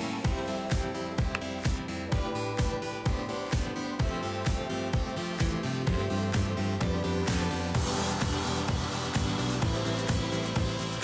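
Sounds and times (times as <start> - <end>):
kick drum: 0.2 - 11.0.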